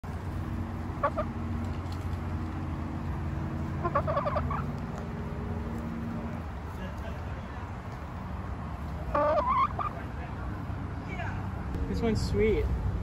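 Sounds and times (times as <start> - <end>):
hen clucking: 1.0 - 1.4, 3.7 - 5.0, 9.0 - 10.1.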